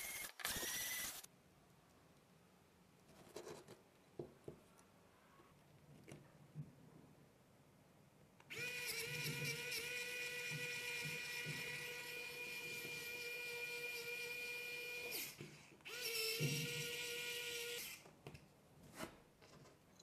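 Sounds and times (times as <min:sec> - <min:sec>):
electric screwdriver whining: 0:00.0 - 0:01.3, 0:08.5 - 0:18.0.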